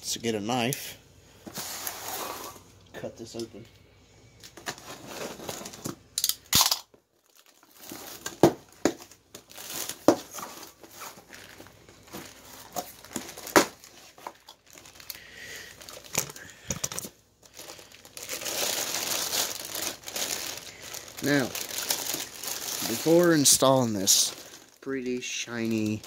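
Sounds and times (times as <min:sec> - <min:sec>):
cardboard box being unpacked: 0:04.6 - 0:06.0, 0:07.4 - 0:15.1
plastic bag crinkling: 0:06.6 - 0:26.0.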